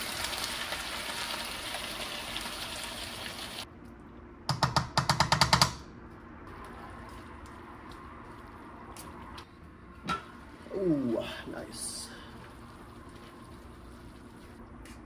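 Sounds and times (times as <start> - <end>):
food sizzling in hot oil: 0.0 - 3.7.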